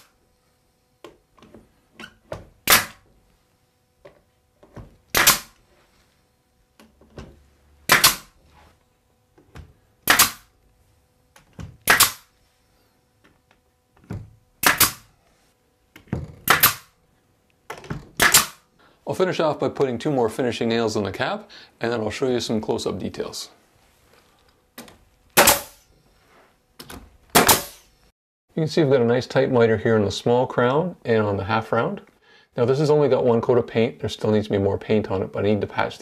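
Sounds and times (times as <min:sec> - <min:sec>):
pneumatic nailer shots: 0:02.6 - 0:03.1, 0:05.1 - 0:05.6, 0:07.9 - 0:08.4, 0:10.0 - 0:10.5, 0:11.8 - 0:12.3, 0:14.6 - 0:15.1, 0:16.4 - 0:17.0, 0:18.1 - 0:18.7, 0:25.4 - 0:25.9, 0:27.3 - 0:28.0.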